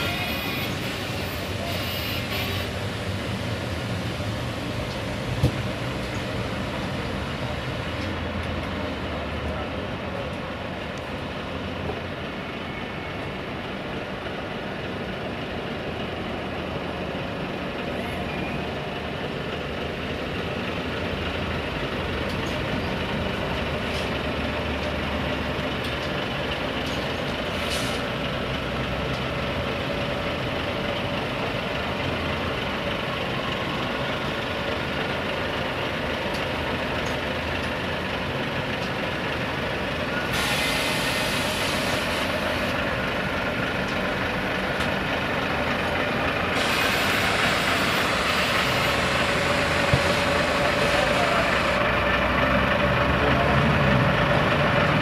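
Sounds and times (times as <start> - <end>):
truck diesel engine running: 0.0 - 55.0
air brake hiss: 27.5 - 28.1, 40.3 - 42.4, 46.5 - 51.8
short air hiss: 40.3 - 42.3, 46.6 - 48.4.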